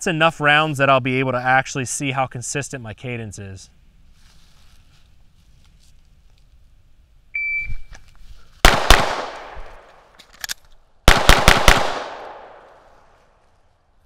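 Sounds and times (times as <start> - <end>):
shot timer beep: 7.4 - 7.9
handgun shots with ringing echo: 8.7 - 9.8, 11.1 - 12.7
magazine reload clicks: 8.7 - 12.4.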